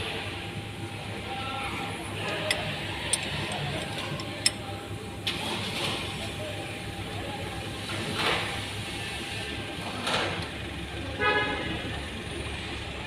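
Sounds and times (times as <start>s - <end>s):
workshop hum: 0.0s - 13.0s
metal parts clicking and knocking: 2.2s - 4.8s.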